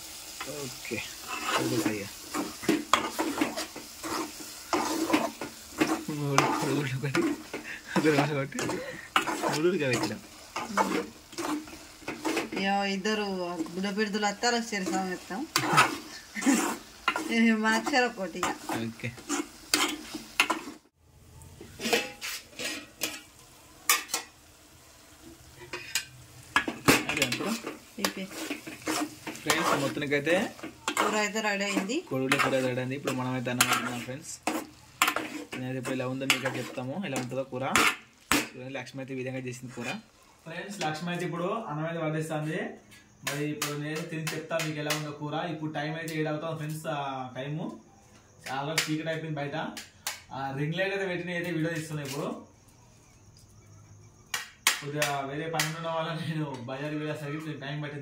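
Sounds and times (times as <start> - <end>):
light sizzle: 0.0 - 58.0
spoon scraping and knocking metal pot: 1.2 - 12.7, 14.8 - 20.8, 21.6 - 23.3, 25.6 - 38.6.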